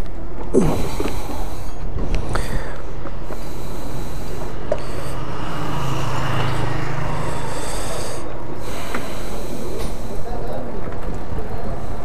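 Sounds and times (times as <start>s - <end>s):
engine humming: 0.0s - 12.0s.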